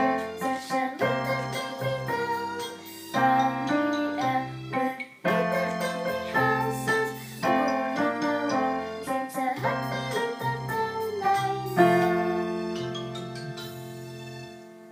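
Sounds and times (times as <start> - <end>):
digital piano playing: 0.0 - 14.9.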